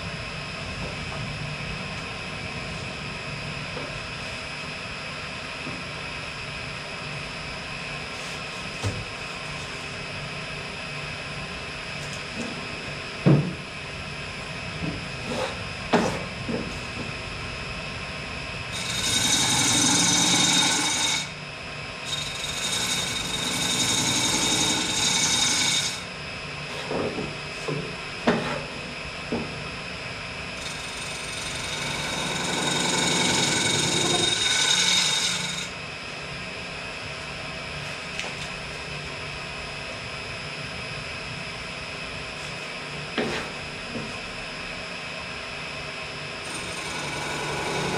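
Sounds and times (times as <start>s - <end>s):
turning tool scraping wood: 18.7s - 21.3s, 22.1s - 26.0s, 30.6s - 35.7s, 46.5s - 47.9s
wood lathe motor hum: 18.7s - 21.4s, 22.0s - 26.1s, 30.6s - 35.8s, 46.4s - 47.9s.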